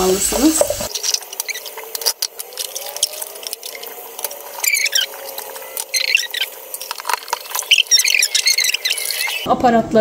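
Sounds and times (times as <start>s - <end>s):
high squeaking of rubbed plastic: 2.7s - 9.5s.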